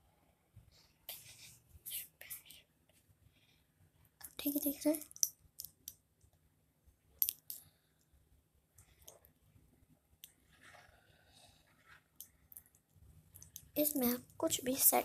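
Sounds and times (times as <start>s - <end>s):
metallic watch bracelet clicks: 5.0s - 6.0s, 7.2s - 7.6s.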